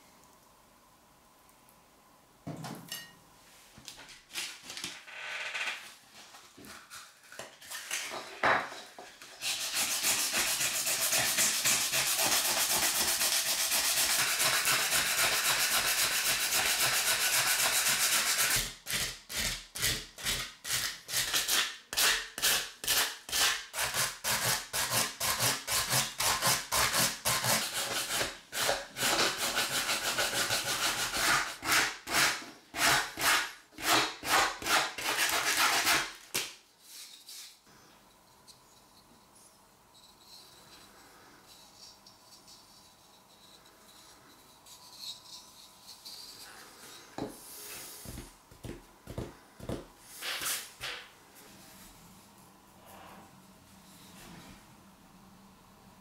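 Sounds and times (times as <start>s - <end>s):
sandpaper rubbing on wood: 9.4s - 36.1s.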